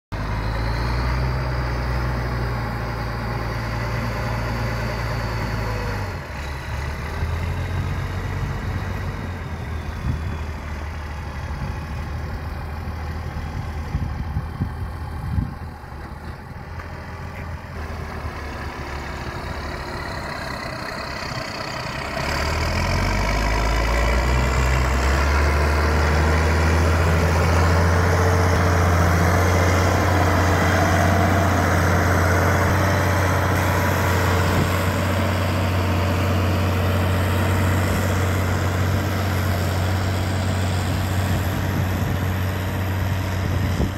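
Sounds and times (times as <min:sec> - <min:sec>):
tractor diesel engine running: 0:00.1 - 0:43.9.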